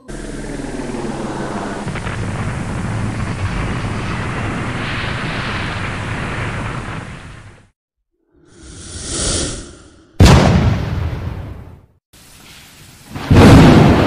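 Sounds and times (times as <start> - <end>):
dense rumbling rushing noise: 0.1 - 7.7.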